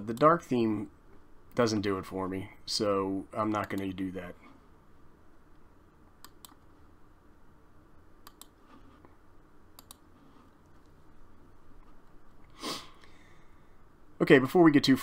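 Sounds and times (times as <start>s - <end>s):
low room hum: 0.0s - 15.0s
computer mouse clicks: 6.2s - 6.7s, 8.2s - 8.6s, 9.8s - 10.1s
short breath: 12.5s - 13.7s.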